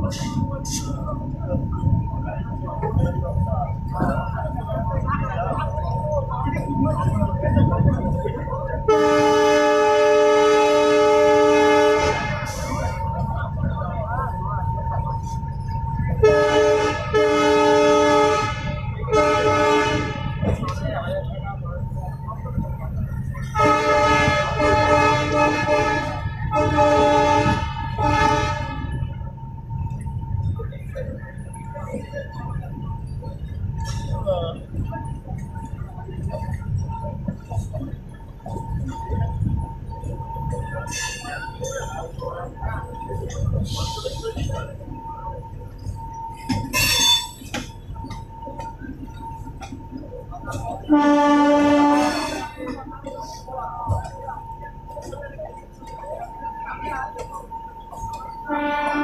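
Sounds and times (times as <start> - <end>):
train rumbling over tracks: 0.0 - 59.0
train horn blasts: 8.8 - 13.6, 16.1 - 20.8, 23.2 - 29.2, 50.8 - 52.7, 58.4 - 59.0
high-pitched horn toot: 23.4 - 29.1.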